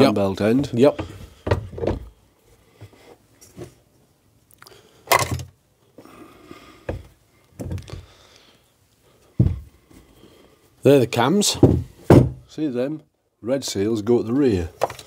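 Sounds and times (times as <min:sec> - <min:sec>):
metal knocks and clunks: 0:11.5 - 0:12.5.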